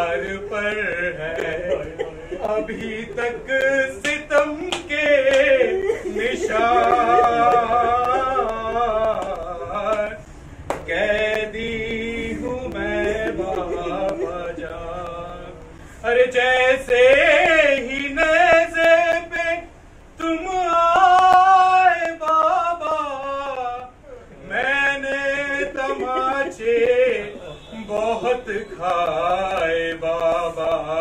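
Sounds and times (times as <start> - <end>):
man chanting a lament: 0.0 - 10.2, 10.9 - 31.0
sharp slaps: 2.5 - 5.6, 6.8 - 14.3.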